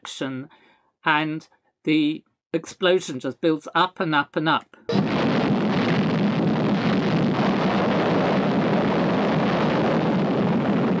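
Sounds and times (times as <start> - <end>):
deep explosion rumble: 4.9 - 11.0.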